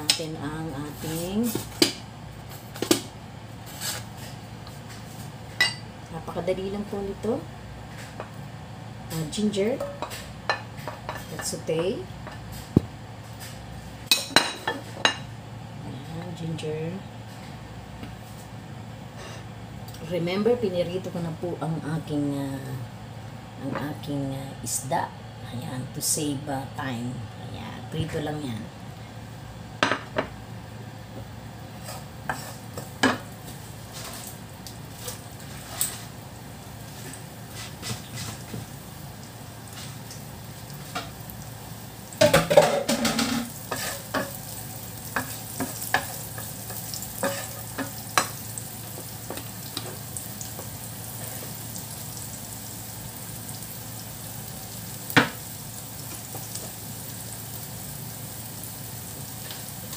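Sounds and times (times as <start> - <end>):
ginger sizzling in hot oil: 31.4 - 59.9
wooden spoon scraping pan: 31.8 - 32.9.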